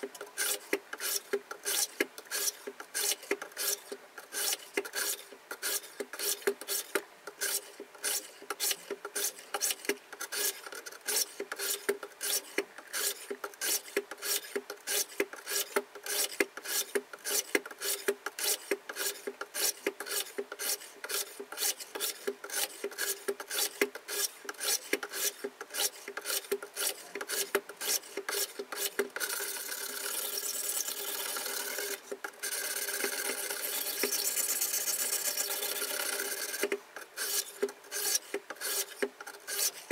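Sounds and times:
sharpening plates rasping on knife: 0.3 - 29.0, 37.2 - 39.8.

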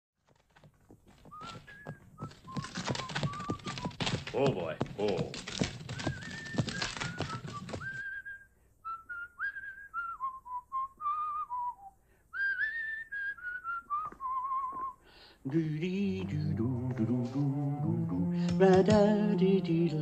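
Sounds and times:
man whistling a tune: 1.3 - 4.0, 5.9 - 15.0
music: 15.9 - 20.0.

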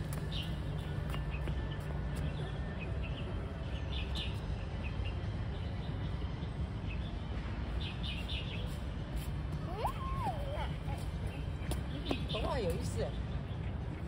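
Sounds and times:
birds chirping: 0.0 - 9.0, 9.7 - 14.0.

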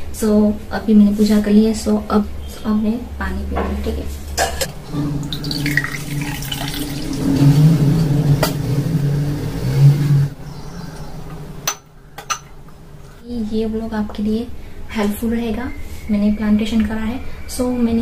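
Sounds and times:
low steady hum: 0.0 - 17.8
water pouring into a glass: 4.8 - 8.1.

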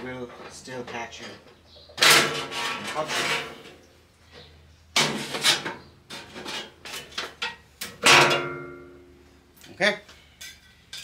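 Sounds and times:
saw blade scraping and rattling: 2.0 - 3.8
metallic clang: 5.0 - 9.0.

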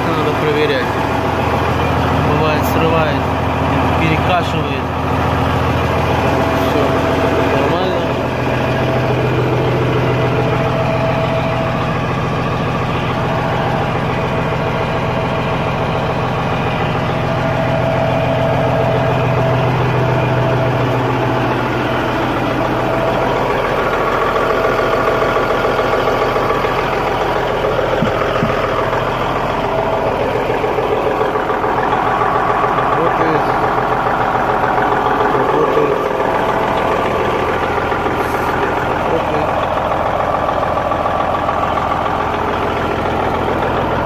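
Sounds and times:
diesel truck engine idling: 0.0 - 44.0.

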